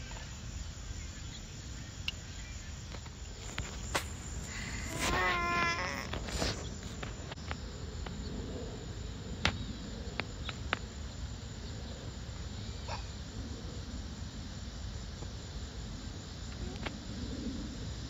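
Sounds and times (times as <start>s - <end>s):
toddler vocalizing: 4.7s - 6.2s.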